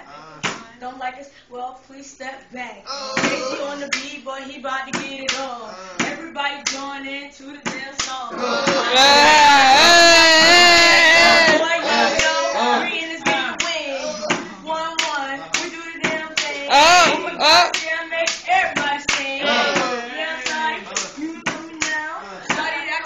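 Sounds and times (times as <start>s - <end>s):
voice holding long note: 8.4s - 12.9s
loud shout: 8.4s - 13.0s, 16.6s - 17.8s, 19.4s - 20.2s
person rapping: 11.2s - 23.0s.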